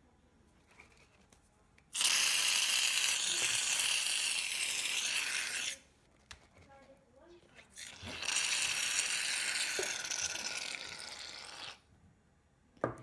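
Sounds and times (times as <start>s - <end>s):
aerosol can spraying foam: 2.0s - 5.8s.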